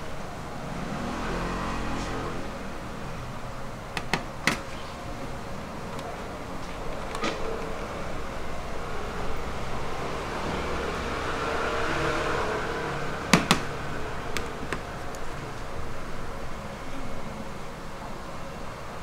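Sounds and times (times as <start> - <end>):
steady background noise: 0.0 - 19.0.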